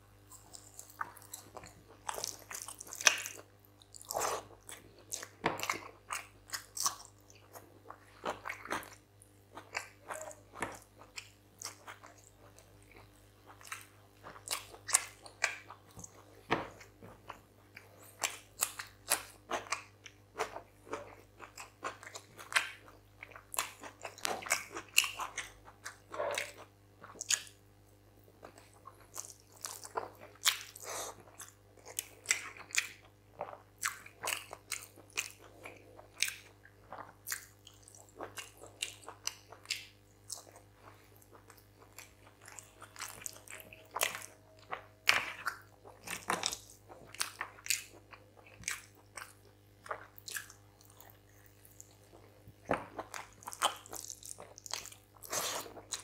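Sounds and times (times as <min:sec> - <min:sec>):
faint steady hum: 0:00.0 - 0:56.0
man chewing and biting food: 0:00.2 - 0:27.6, 0:28.4 - 0:56.0.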